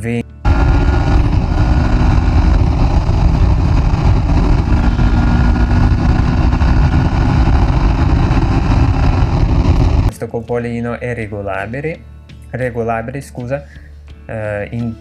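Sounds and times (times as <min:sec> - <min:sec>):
motorcycle engine running: 0:00.4 - 0:10.1
wind rushing on microphone: 0:00.5 - 0:10.1.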